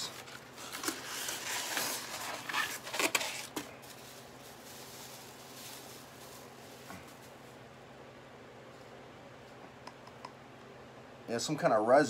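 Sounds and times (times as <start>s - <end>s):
plastic bag rustling and crinkling: 0.0s - 7.6s.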